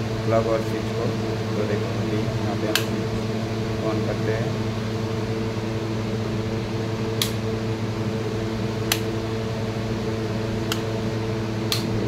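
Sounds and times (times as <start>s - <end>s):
steady low hum: 0.0s - 12.0s
rocker switch clicking: 2.7s - 2.9s, 7.2s - 7.4s, 8.9s - 9.1s, 10.6s - 10.9s, 11.7s - 11.9s.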